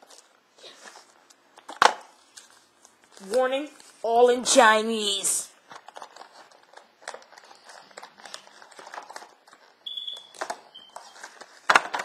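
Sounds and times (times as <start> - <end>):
plastic packaging clicks and rustles: 5.6 - 12.0.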